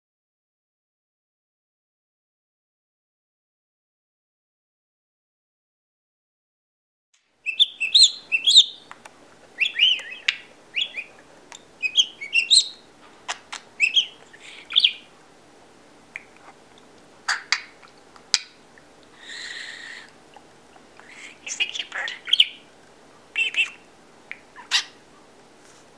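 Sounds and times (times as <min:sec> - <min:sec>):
budgerigar whistling: 0:07.4 - 0:08.9, 0:09.6 - 0:11.2, 0:11.8 - 0:12.9, 0:13.5 - 0:15.1, 0:21.2 - 0:22.6, 0:23.4 - 0:25.0
short breathy hiss: 0:19.1 - 0:20.1.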